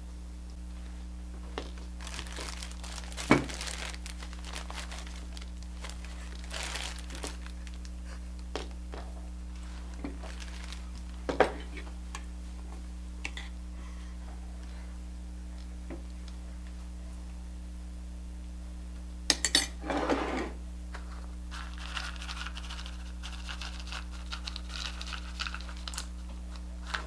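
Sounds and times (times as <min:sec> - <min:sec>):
plastic bag crinkling: 0:01.6 - 0:08.2, 0:09.5 - 0:11.3, 0:21.5 - 0:27.0.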